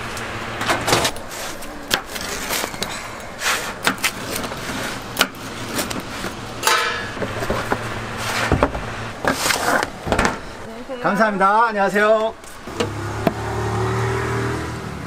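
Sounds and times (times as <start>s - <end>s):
pizza cutter rolling through crust: 1.1s - 6.4s, 7.2s - 10.0s.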